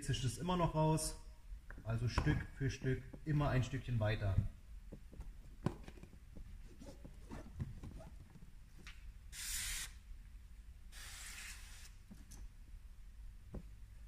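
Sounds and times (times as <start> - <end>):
spray bottle hissing: 9.3 - 10.0, 10.9 - 12.0.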